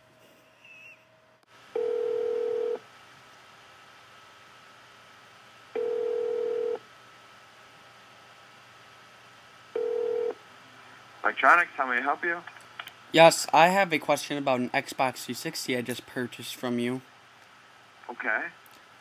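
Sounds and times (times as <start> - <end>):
call ringback tone: 1.8 - 2.8, 5.8 - 6.8, 9.8 - 10.4.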